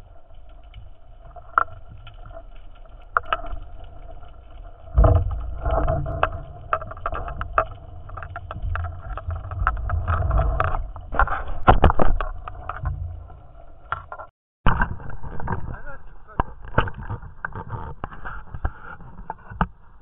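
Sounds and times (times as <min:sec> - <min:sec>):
underwater rumble of moving water: 0:00.0 - 0:20.0
sharp clicks and knocks: 0:00.4 - 0:19.8.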